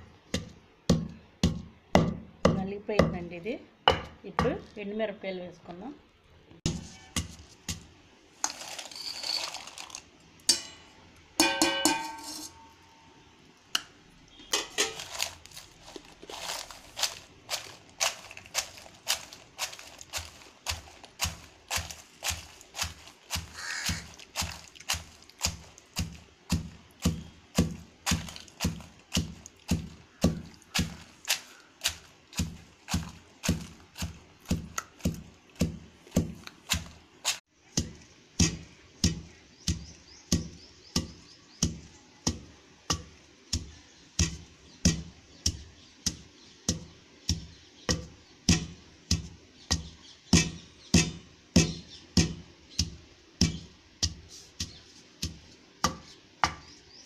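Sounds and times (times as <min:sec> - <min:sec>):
pestle pounding in stone mortar: 0:00.3 - 0:03.2, 0:14.6 - 0:56.8.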